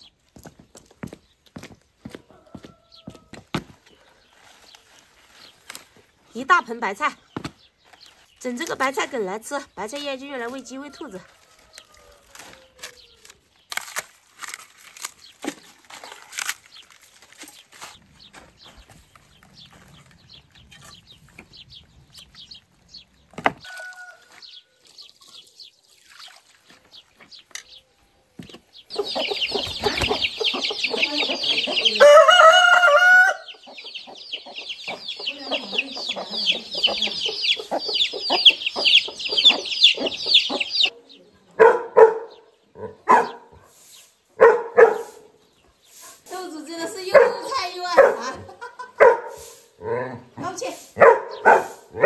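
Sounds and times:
rooster crowing: 2.2 - 3.4, 23.6 - 24.8, 30.9 - 33.6
chicks peeping: 27.3 - 41.6.

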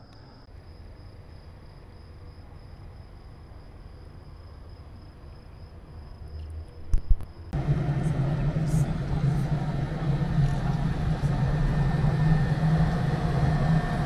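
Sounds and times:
cricket trilling: 0.0 - 7.6
low rumble: 7.1 - 14.0.

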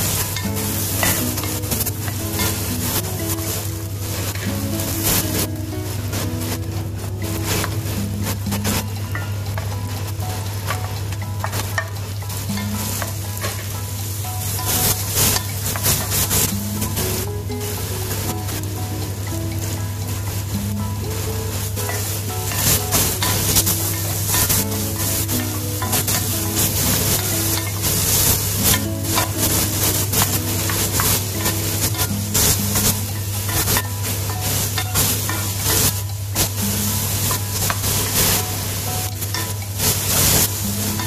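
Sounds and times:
background music: 0.0 - 41.0
vegetables sizzling in hot oil: 0.0 - 41.0
wooden spatula scraping a pan: 21.2 - 41.0.

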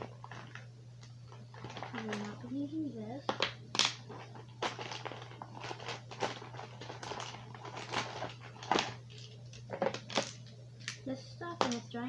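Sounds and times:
pouch crinkling: 1.3 - 2.5, 3.8 - 11.0.

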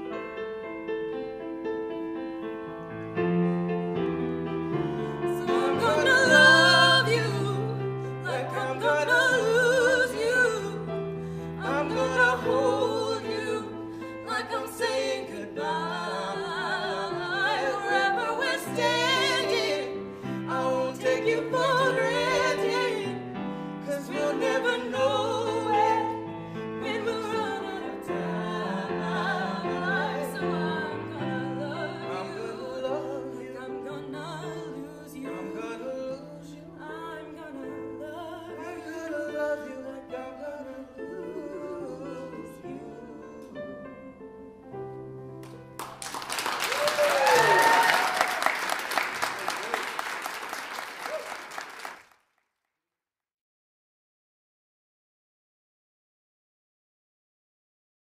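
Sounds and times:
man and woman singing duet: 5.1 - 44.7.

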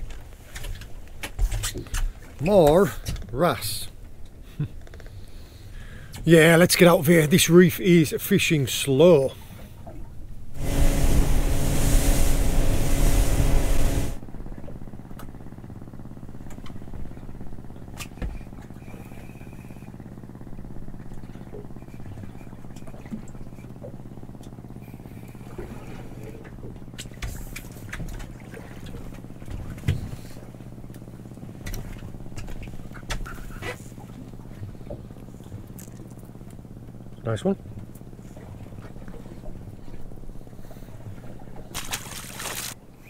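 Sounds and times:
boat engine running: 0.0 - 43.0
low engine hum: 0.0 - 43.0
wind and water rushing: 10.5 - 14.2.

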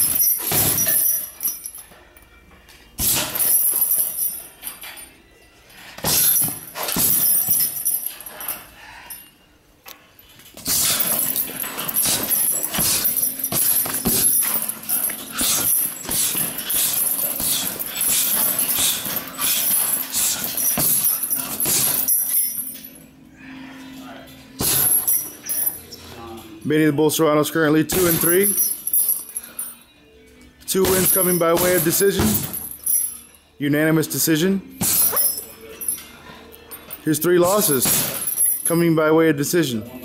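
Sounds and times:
punches and kicks on leather bag: 6.0 - 7.8, 10.6 - 22.1, 30.9 - 32.7, 37.7 - 38.4.

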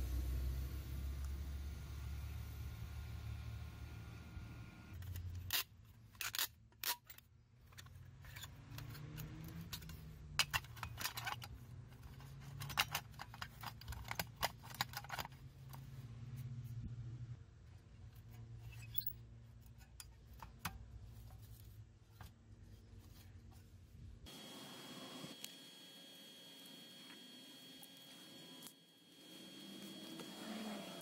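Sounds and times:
metal panels clinking and scraping: 6.2 - 15.8.

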